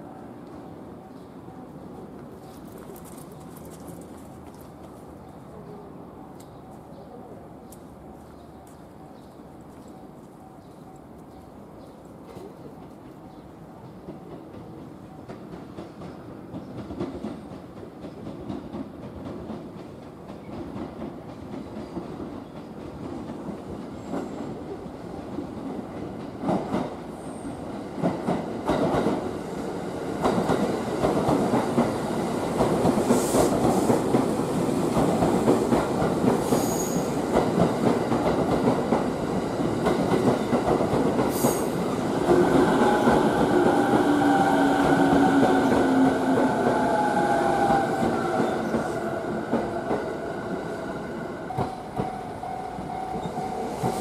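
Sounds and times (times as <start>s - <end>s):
electric train approaching: 23.0s - 54.0s
train squealing tone: 36.5s - 37.2s, 43.8s - 54.0s.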